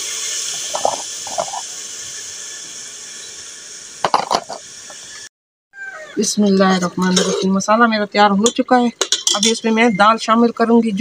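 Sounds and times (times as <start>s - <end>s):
spices sizzling in hot oil: 0.0s - 5.3s
ladle scraping pot: 6.8s - 7.6s, 9.0s - 9.6s.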